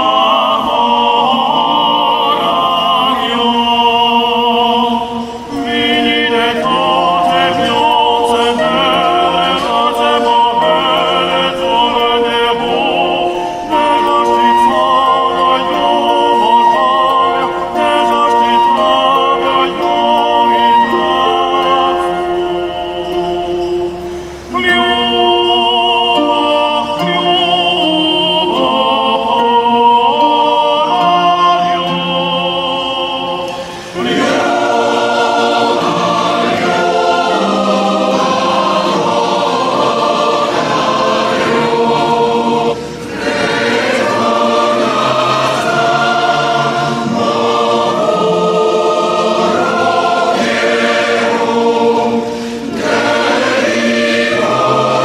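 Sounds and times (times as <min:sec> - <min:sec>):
choir singing held notes: 0:00.0 - 0:55.0.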